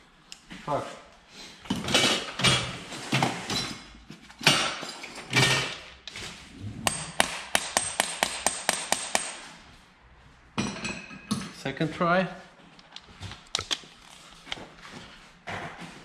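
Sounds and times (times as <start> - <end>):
tools clattering: 1.7 - 6.3.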